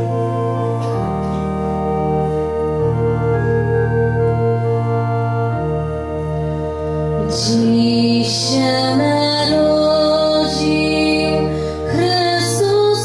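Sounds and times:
organ playing slow chords: 0.0s - 13.0s.

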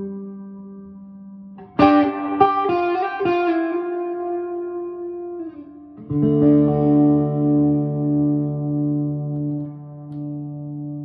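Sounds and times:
electric guitar chord: 0.0s - 11.0s
electric guitar notes: 0.0s - 11.0s.

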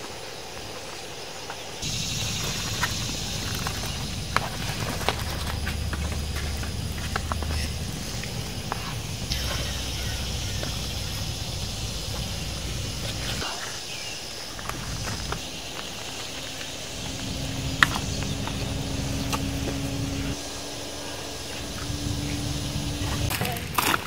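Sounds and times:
faint steady hum: 0.0s - 23.9s
wind rumbling on microphone: 14.4s - 24.0s.

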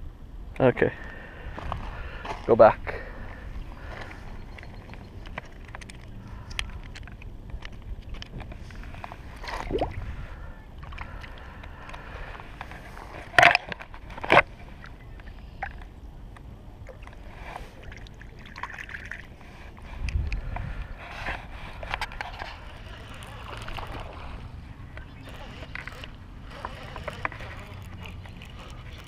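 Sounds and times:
low wind: 0.0s - 29.0s
water sloshing: 16.8s - 29.0s
handling rumble: 19.4s - 29.0s
plastic clacks: 24.9s - 29.0s.

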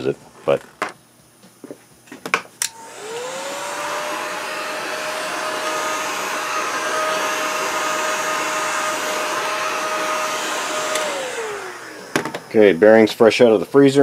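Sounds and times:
heat gun fan whine: 2.1s - 14.0s
clicks: 2.6s - 2.8s.

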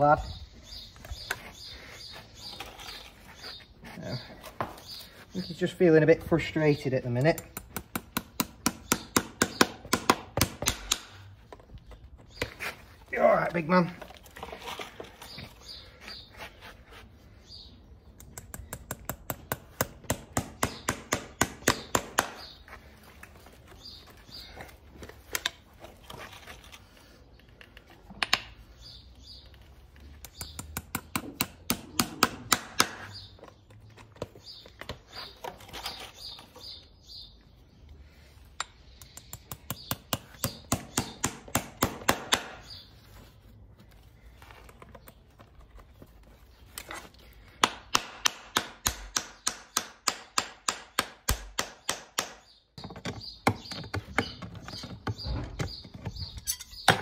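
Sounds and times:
hammer tapping nails into horseshoe: 7.3s - 11.2s, 18.2s - 22.5s, 30.2s - 33.1s, 38.6s - 42.8s, 47.6s - 54.9s.

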